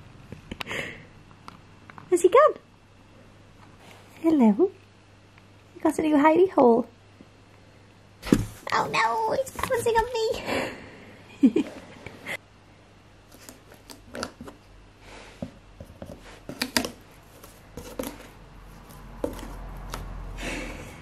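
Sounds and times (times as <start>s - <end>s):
kitten scratching cardboard box: 15.8s - 20.4s.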